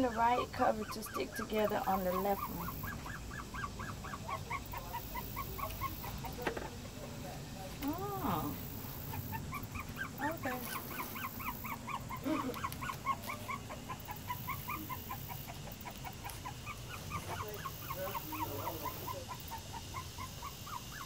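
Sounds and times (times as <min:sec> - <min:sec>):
animal's rapid high calls: 0:00.0 - 0:06.4, 0:07.8 - 0:21.0.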